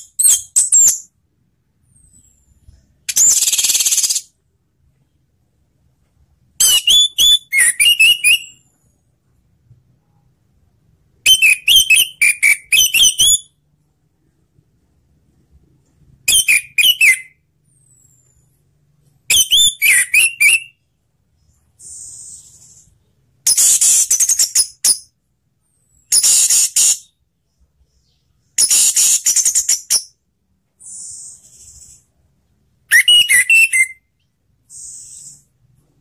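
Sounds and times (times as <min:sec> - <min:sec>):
bird whistling: 0:03.1 - 0:04.3, 0:06.6 - 0:08.6, 0:11.2 - 0:13.5, 0:16.3 - 0:18.1, 0:19.3 - 0:20.8, 0:26.1 - 0:27.2, 0:30.8 - 0:32.1, 0:32.9 - 0:35.5
soft hissing bird notes: 0:21.4 - 0:24.6, 0:25.7 - 0:29.8, 0:30.7 - 0:32.3, 0:34.6 - 0:35.8.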